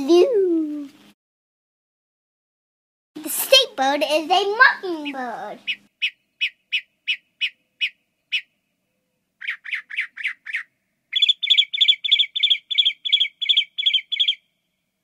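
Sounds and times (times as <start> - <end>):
mockingbird singing: 4.9 - 14.5.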